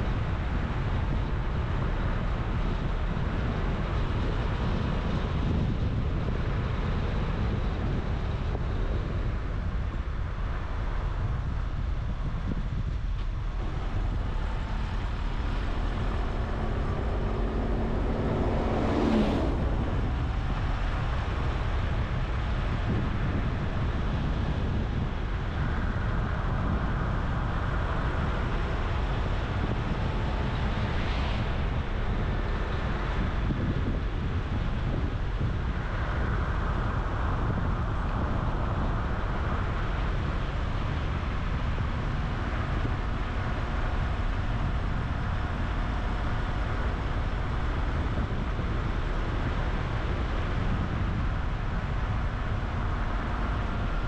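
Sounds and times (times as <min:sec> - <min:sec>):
car engine and road rumble: 0:00.0 - 0:54.0
rising tone: 0:13.6 - 0:21.4.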